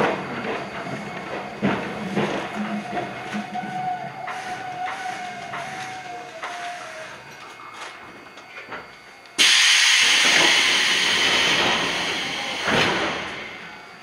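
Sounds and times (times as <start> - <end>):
train whine: 0.0 - 14.0
loud air hiss from train: 9.4 - 13.7.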